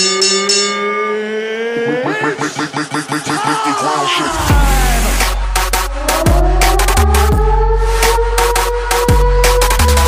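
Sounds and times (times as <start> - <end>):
falling synth tone: 2.5 - 10.0
deep bass: 4.2 - 10.0.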